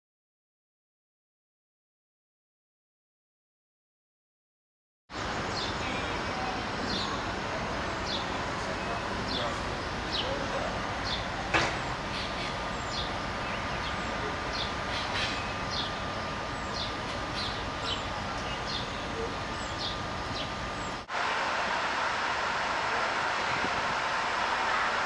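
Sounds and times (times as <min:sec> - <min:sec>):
bird chirping: 0:05.2 - 0:07.3, 0:08.0 - 0:21.1.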